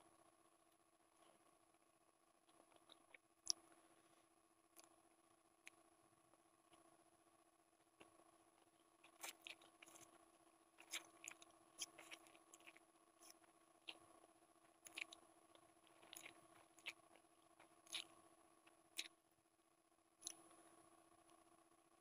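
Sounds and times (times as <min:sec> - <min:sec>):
faint steady hum: 0:00.0 - 0:22.0
wet chewing smacks: 0:10.8 - 0:14.0, 0:14.8 - 0:15.2, 0:15.8 - 0:18.1.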